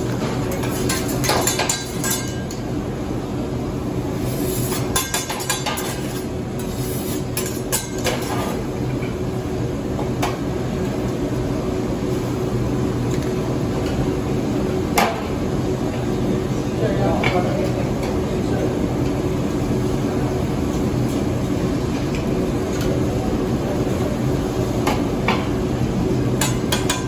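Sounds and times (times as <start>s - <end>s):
steady background hum: 0.0s - 27.0s
metal spatula clinking on griddle: 0.5s - 2.6s, 4.9s - 6.0s.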